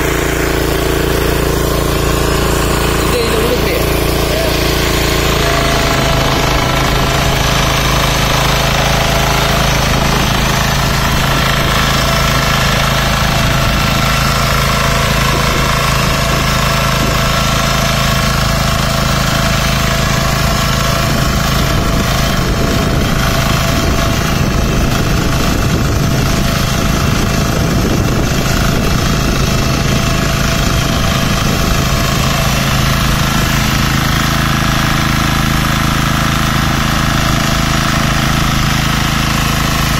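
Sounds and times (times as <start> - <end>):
power weeder engine running: 0.0 - 39.9
rotor tilling muddy water: 0.0 - 39.9.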